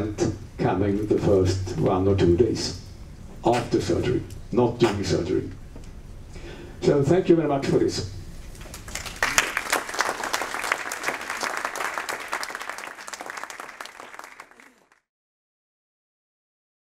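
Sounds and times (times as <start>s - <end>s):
audience clapping: 8.5s - 15.1s.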